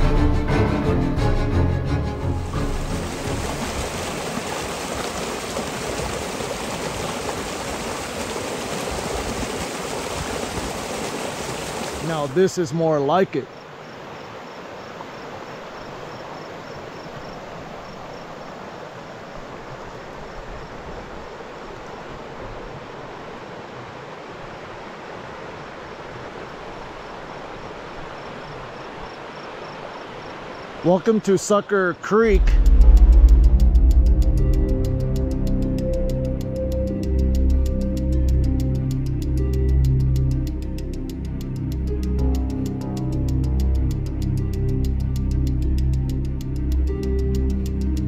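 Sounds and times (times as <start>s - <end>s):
creek water rushing: 0.0s - 45.8s
faint insect chirp: 12.4s - 31.1s.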